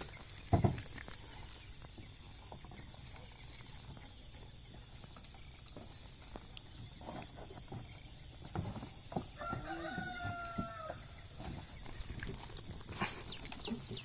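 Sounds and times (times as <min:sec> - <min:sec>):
rooster crowing: 0:09.3 - 0:11.2.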